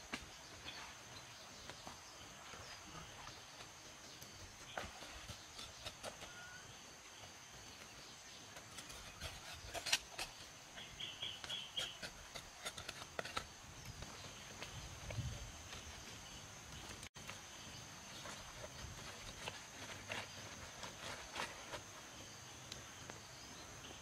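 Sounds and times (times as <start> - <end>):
knife scraping on bone: 8.6 - 10.5, 11.2 - 13.5.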